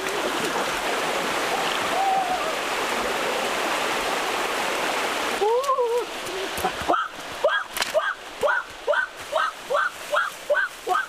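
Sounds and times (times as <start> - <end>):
stream water running: 0.0 - 11.0.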